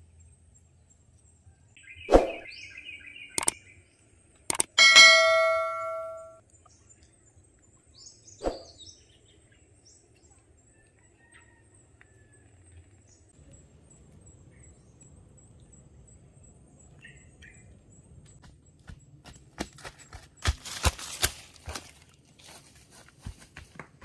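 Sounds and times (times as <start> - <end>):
faint jungle ambience: 0.0 - 24.0
birds chirping: 1.8 - 10.2
sharp click: 3.4 - 3.6, 4.5 - 6.1.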